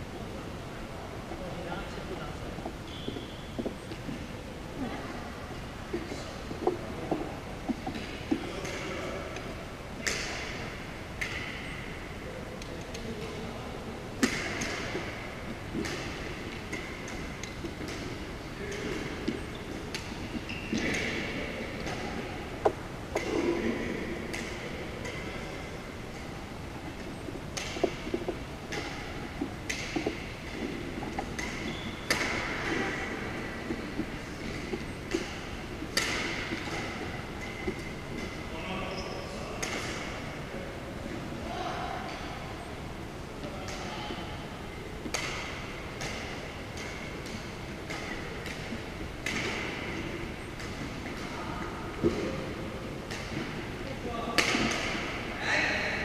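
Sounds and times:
steady background hum: 0.0 - 56.0
shoes squeaking on wooden floor: 2.6 - 4.2, 19.3 - 21.0, 29.3 - 36.8
sneakers squeaking on court: 2.7 - 4.2, 14.7 - 22.0, 26.8 - 39.4
rackets striking shuttlecock: 10.0 - 11.9, 14.2 - 23.5, 24.2 - 38.4, 39.6 - 40.2, 45.1 - 51.3, 54.3 - 55.3.

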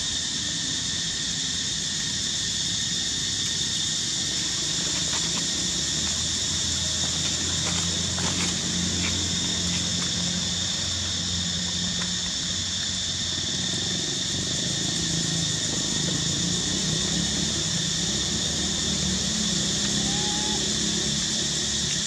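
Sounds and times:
high-pitched insect drone: 0.0 - 22.0
low engine hum: 0.2 - 22.0.

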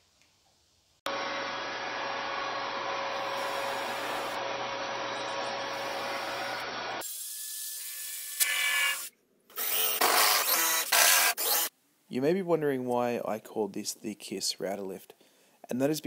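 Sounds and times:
electric power tool whining: 1.1 - 7.0, 8.4 - 11.7.

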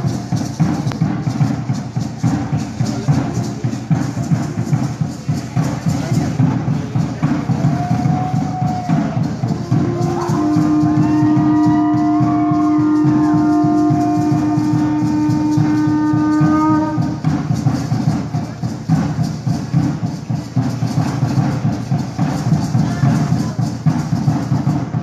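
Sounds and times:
fast dense drumming: 0.0 - 25.0
long blown note: 9.6 - 17.2.

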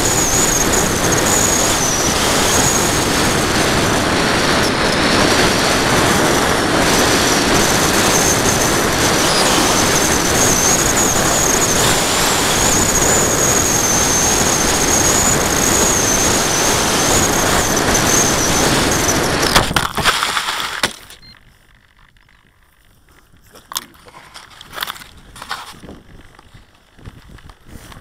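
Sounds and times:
wind rush: 0.0 - 20.1, 24.6 - 28.0
electric motor and propeller whine: 0.0 - 22.8
footsteps crunching in dry grass: 21.4 - 28.0.

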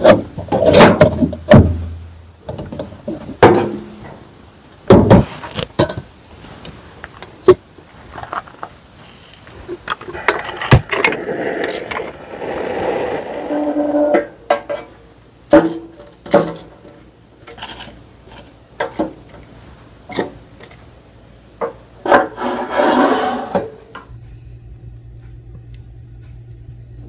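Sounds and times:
low steady hum: 0.0 - 22.1, 23.3 - 27.0
metal scraping: 9.8 - 15.0, 22.0 - 23.8.

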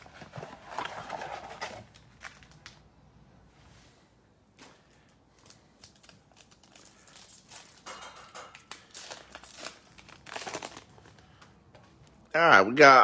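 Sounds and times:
plastic wrapper crinkling: 0.7 - 2.8, 4.8 - 12.2.

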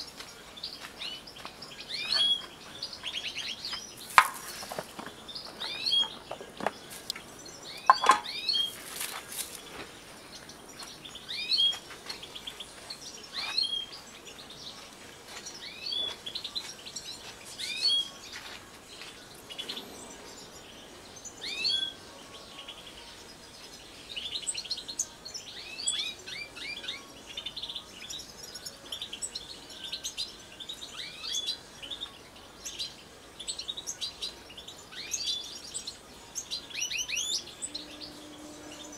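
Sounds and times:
goldfinches calling: 36.6 - 38.9.

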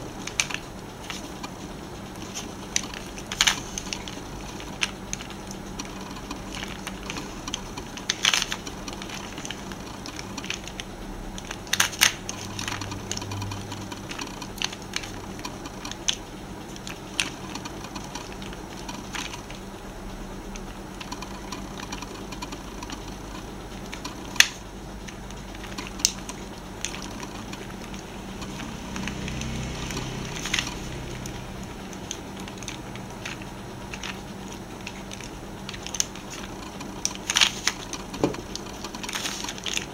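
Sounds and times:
plastic puzzle clicking and scraping: 0.0 - 19.7, 20.5 - 39.9
sharp plastic clacks: 2.2 - 19.6.

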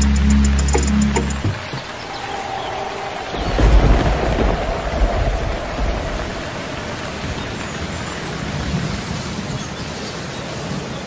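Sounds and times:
heavy rain hissing: 0.0 - 10.9
low rumble of thunder: 1.7 - 9.5.

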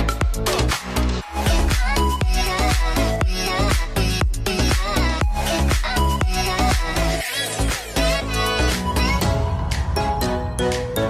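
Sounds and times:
dance music with steady beat: 0.0 - 11.0.

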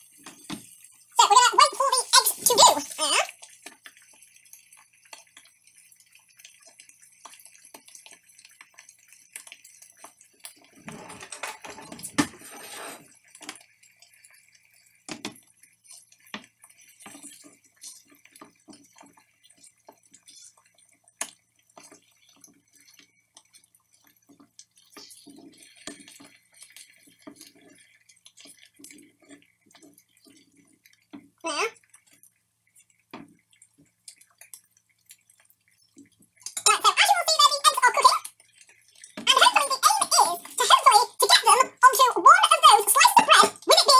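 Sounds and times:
fat crackling and popping: 0.0 - 43.9
clatter and rustling: 9.4 - 13.7.

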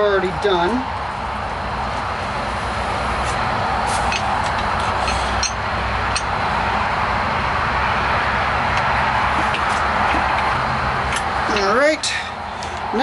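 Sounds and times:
steady rushing noise: 0.0 - 13.0
steel rod clinking on vise: 5.0 - 6.3, 11.5 - 11.8.

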